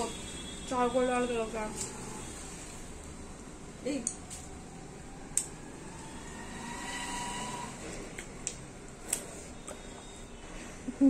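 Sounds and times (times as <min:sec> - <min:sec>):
people chewing and lip smacking: 0:08.1 - 0:10.1.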